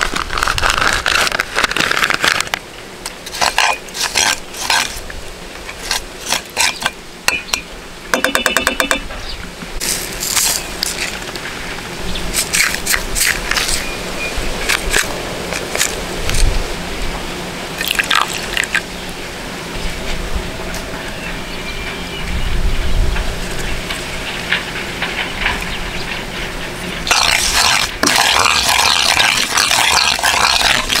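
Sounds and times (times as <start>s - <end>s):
metal spoon scraping a pan: 5.7s - 7.0s, 27.1s - 31.0s
paste sizzling in hot oil: 27.1s - 31.0s.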